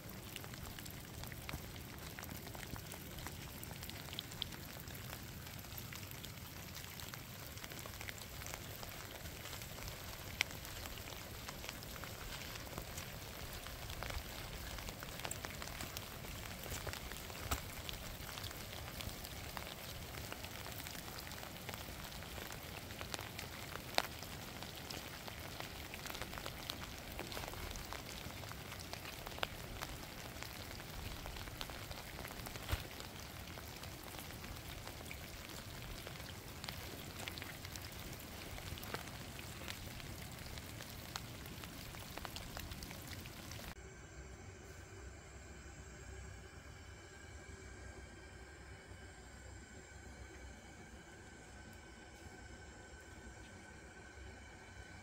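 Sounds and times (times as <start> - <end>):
raindrop impacts: 0.0 - 43.8
steady rain hiss: 0.0 - 55.0.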